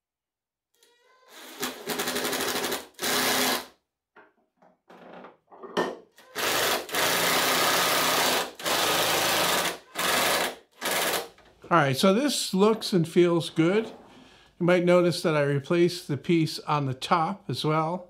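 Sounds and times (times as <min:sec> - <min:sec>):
impact driver hammering screws: 0:01.5 - 0:03.7, 0:06.3 - 0:11.4.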